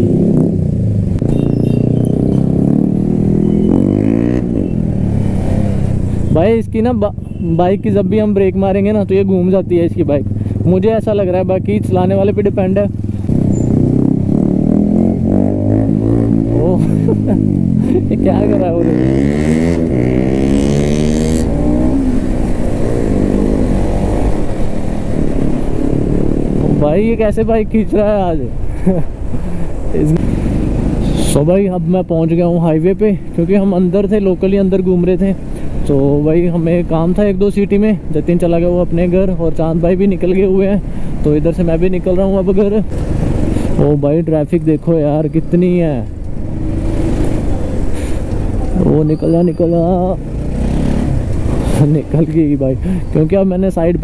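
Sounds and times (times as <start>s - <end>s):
motorcycle engine revving: 0.0s - 6.6s, 9.3s - 27.2s, 45.8s - 52.2s.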